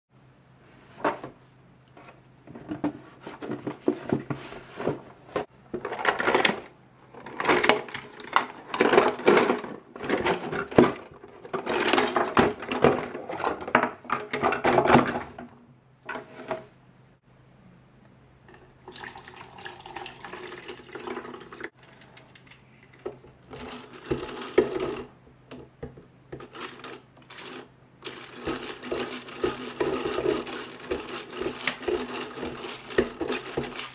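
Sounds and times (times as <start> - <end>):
plastic toy pots clattering: 2.5 - 15.5, 21.8 - 33.9
hand-crank egg beater whirring: 26.4 - 33.9.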